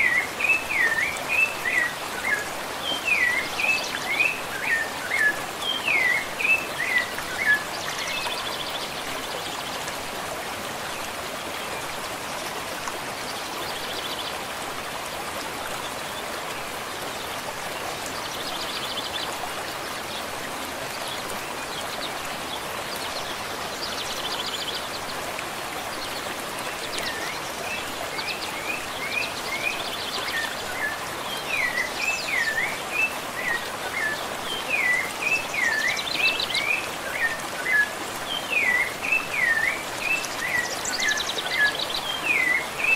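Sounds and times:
thrush whistling song: 0.0 - 8.4, 27.0 - 42.9
running water: 0.0 - 42.9.

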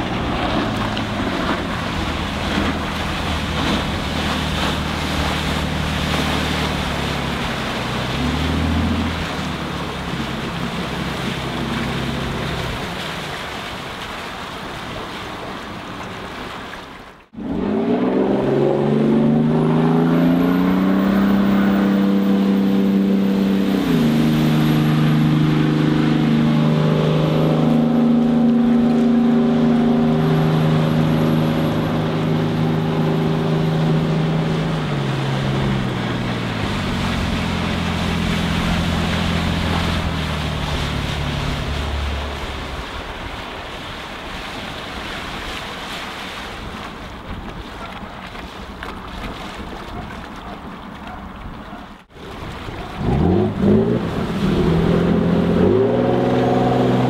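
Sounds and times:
jet boat engine running: 0.0 - 16.6, 17.2 - 57.0
water noise: 0.0 - 57.0
wind: 0.0 - 57.0.

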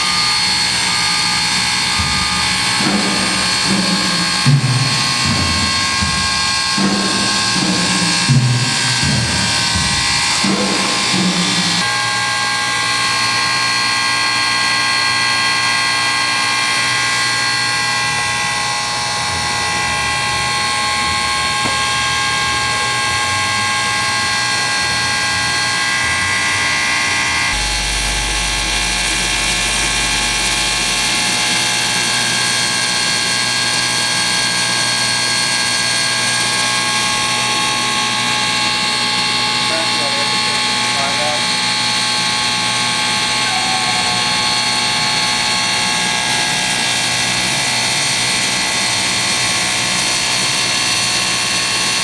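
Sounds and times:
multi-tone whine: 0.0 - 52.0
steam locomotive hissing: 0.0 - 52.0
low rumble: 1.7 - 11.9.

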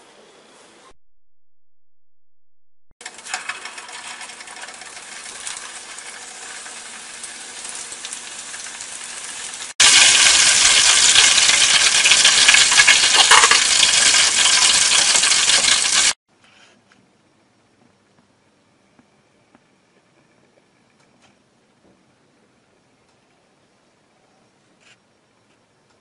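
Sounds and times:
food sizzling in hot oil: 3.0 - 16.2.

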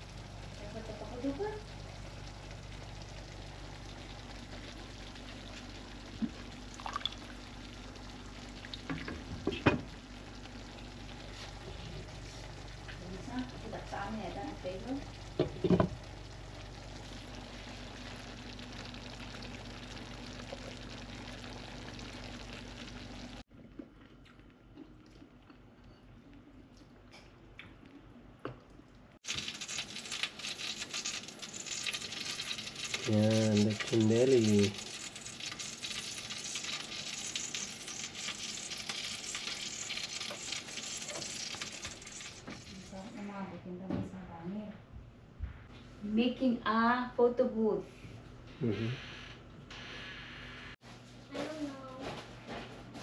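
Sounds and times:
food sizzling in pan: 0.0 - 23.4, 29.2 - 43.4.

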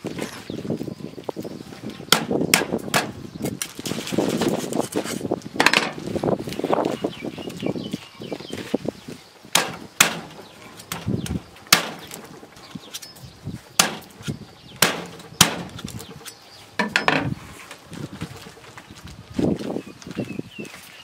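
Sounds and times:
knife chopping through bones: 9.6 - 11.0, 14.8 - 17.1.

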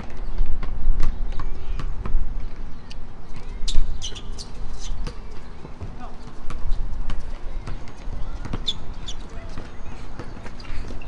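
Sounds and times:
sneaker squeaks: 1.0 - 11.0
basketball bouncing: 3.4 - 11.0.

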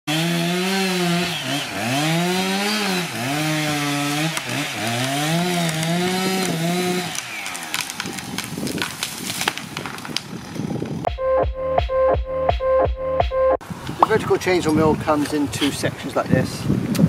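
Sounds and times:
chainsaw cutting wood: 0.1 - 11.1
tree cracking and snapping: 1.5 - 11.0.

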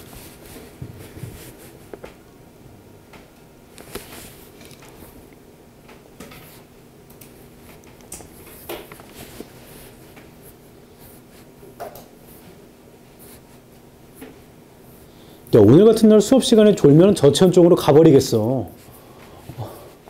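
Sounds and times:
paper rustling: 3.8 - 5.2.

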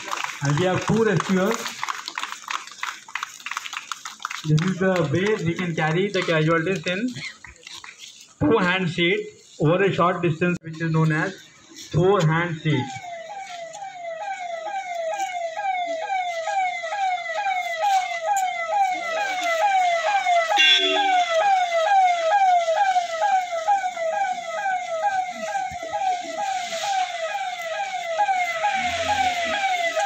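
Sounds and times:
ambulance siren: 0.0 - 2.4, 4.4 - 6.9, 11.0 - 30.0.

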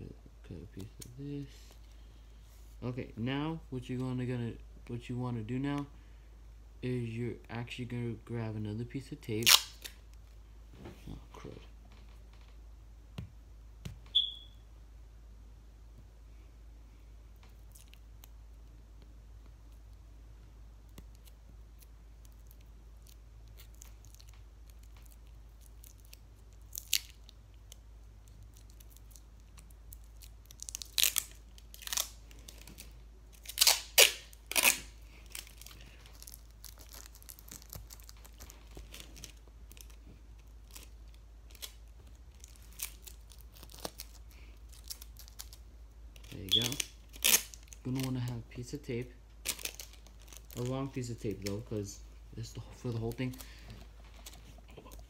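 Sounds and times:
tape ripping off roll: 33.4 - 39.4.

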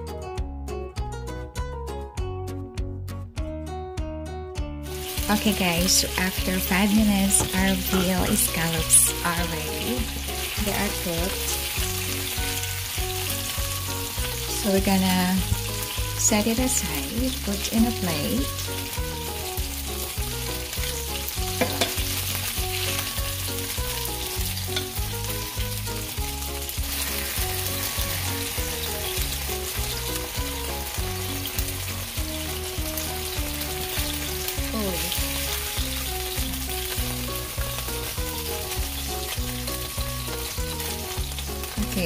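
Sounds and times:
soft background music: 0.0 - 42.0
meat sizzling in a frying pan: 4.8 - 42.0.

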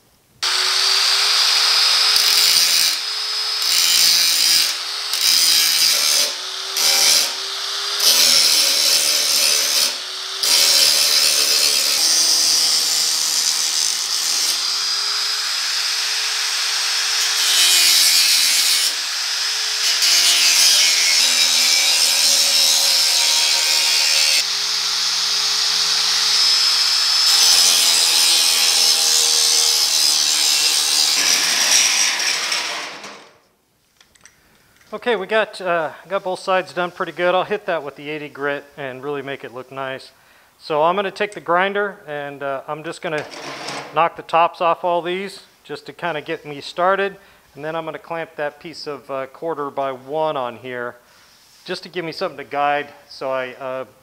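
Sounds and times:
angle grinder grinding steel: 0.4 - 33.2.

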